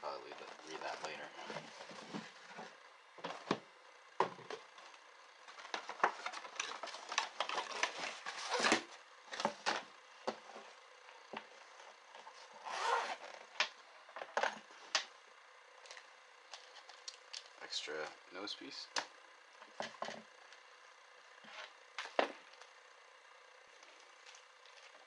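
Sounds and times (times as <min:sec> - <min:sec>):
cardboard and paper packaging rustling: 0:00.1 - 0:14.8
case zipper opening: 0:12.6 - 0:13.4.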